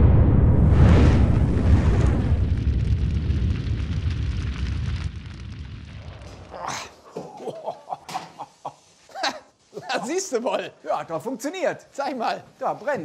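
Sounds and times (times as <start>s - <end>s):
gas fireball rumble: 0.0s - 6.6s.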